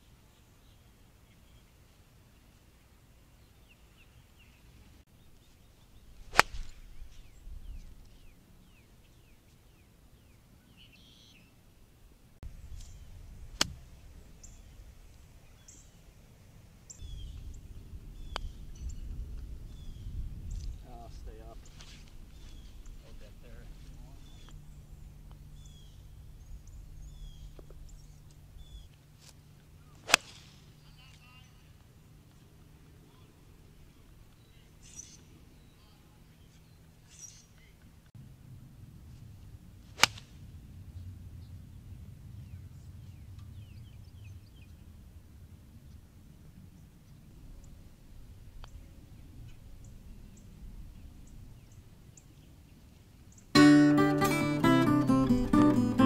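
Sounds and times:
birds chirping: 0:00.0 - 0:11.7, 0:13.9 - 0:29.0
golf club striking ball: 0:06.3 - 0:07.4, 0:13.5 - 0:13.8, 0:30.0 - 0:30.5, 0:40.0 - 0:40.2.

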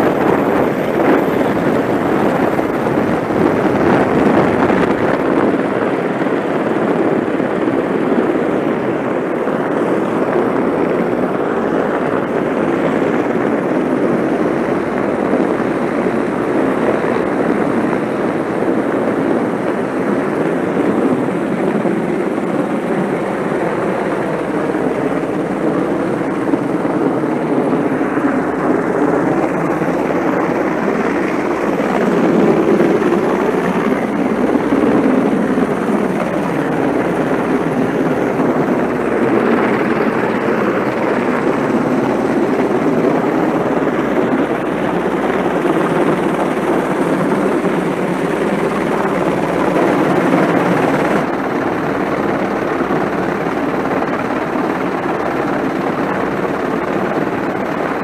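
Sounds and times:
helicopter hovering: 0:00.0 - 0:58.0.

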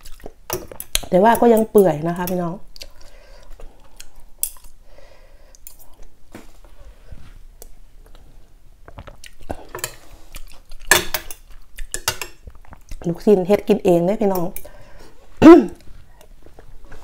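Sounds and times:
chewing and slurping soup: 0:00.0 - 0:01.0, 0:02.7 - 0:04.8, 0:08.9 - 0:13.1.

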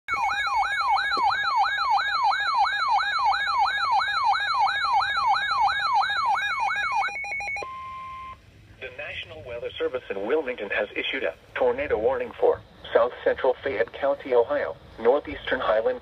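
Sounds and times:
warbling electronic siren alarm: 0:00.1 - 0:08.4.

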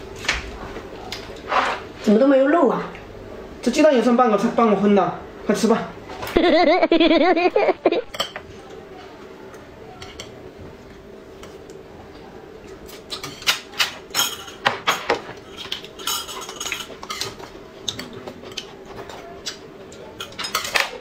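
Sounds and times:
faint steady hum: 0:00.0 - 0:21.0
chopsticks clinking on plates: 0:08.1 - 0:09.1, 0:12.7 - 0:21.0.

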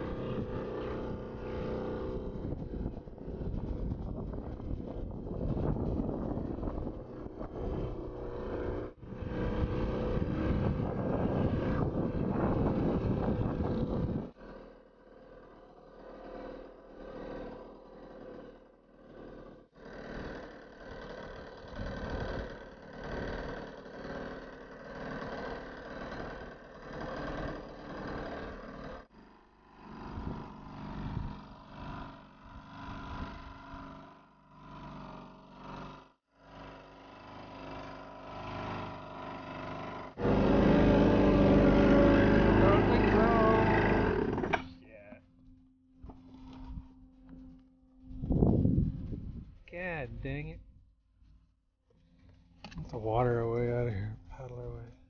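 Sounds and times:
outboard motor running: 0:00.0 - 0:49.2
wind on microphone: 0:02.0 - 0:14.3, 0:48.1 - 0:50.8.

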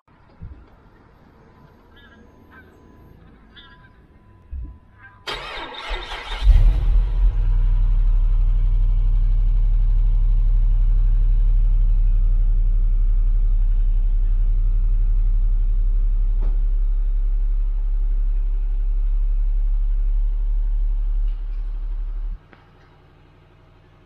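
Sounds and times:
car engine idling: 0:00.1 - 0:24.0.

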